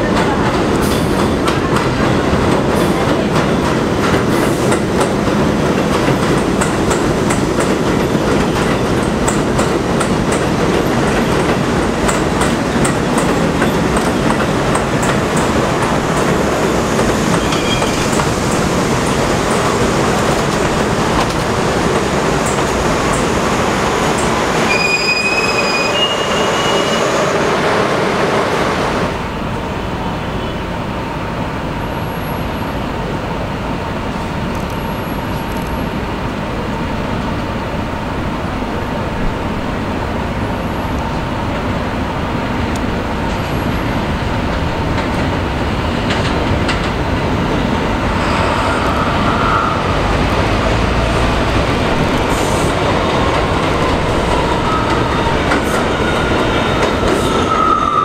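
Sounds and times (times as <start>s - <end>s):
subway train running past: 0.0s - 58.0s
train wheels squealing: 17.3s - 18.2s, 24.6s - 27.6s, 48.0s - 50.3s, 54.3s - 58.0s.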